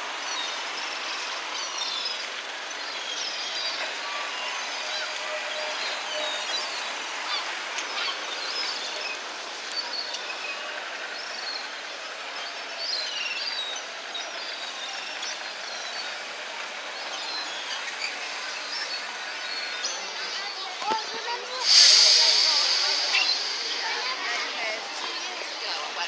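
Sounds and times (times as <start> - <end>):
steel wheels on rail: 21.5 - 25.3.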